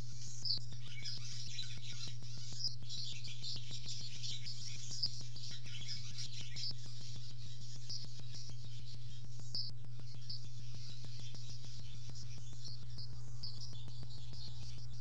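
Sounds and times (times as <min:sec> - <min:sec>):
swallow twittering: 0:00.0 - 0:15.0
faint fast ticks: 0:06.1 - 0:15.0.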